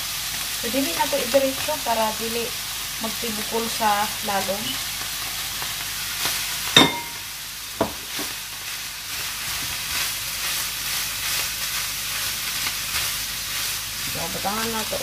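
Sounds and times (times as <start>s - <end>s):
food sizzling in a frying pan: 0.0s - 15.0s
sharp ringing clack: 6.8s - 7.2s.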